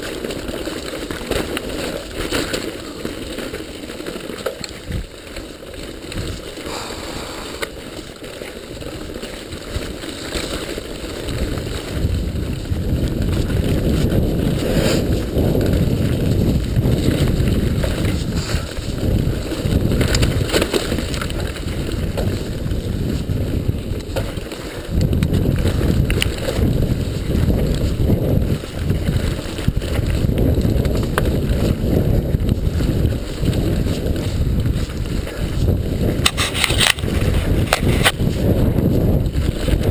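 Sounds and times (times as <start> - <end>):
bike knocking and rattling: 0.0 - 39.9
wind rushing over microphone: 6.1 - 7.8, 11.1 - 39.9.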